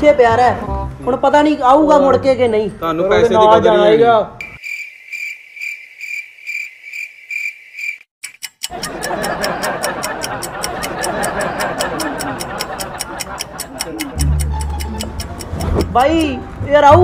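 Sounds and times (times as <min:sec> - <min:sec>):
cricket chirp sound effect: 0:04.4 - 0:08.1
rapid clock ticking: 0:08.2 - 0:16.4.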